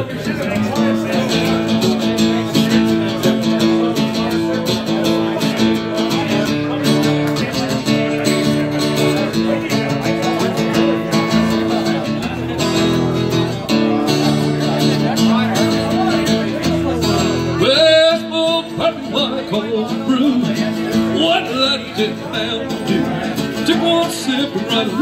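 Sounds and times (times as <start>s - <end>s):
acoustic guitar strumming: 0.0s - 25.0s.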